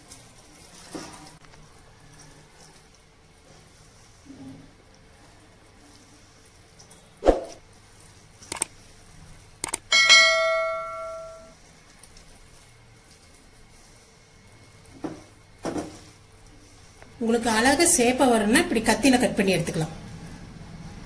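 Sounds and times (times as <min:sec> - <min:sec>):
mouse clicks: 0:08.5 - 0:08.7
notification bell ding: 0:09.9 - 0:11.5.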